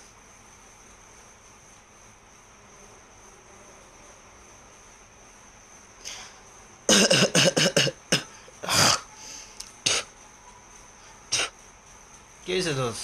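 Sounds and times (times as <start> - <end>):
man coughing: 6.9 - 9.0.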